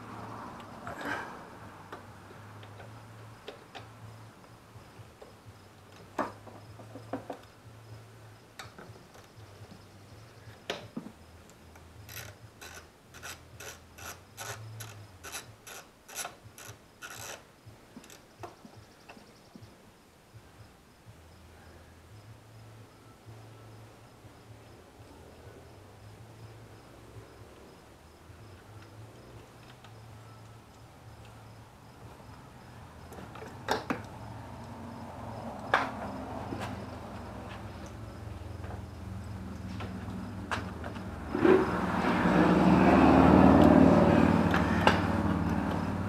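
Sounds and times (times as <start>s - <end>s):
hand ratchet clicking: 11.8s - 17.4s.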